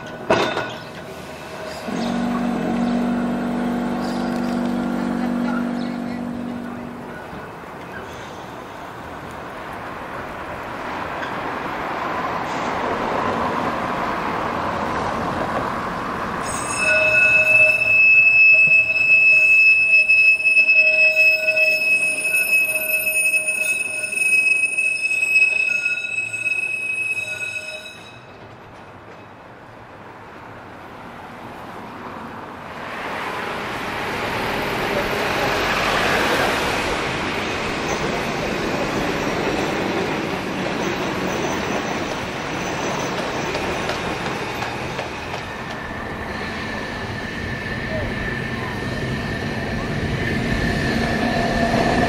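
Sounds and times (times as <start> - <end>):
tram rumbling on rails: 0.0 - 52.0
steel wheels squealing on track: 16.4 - 28.5, 37.8 - 52.0.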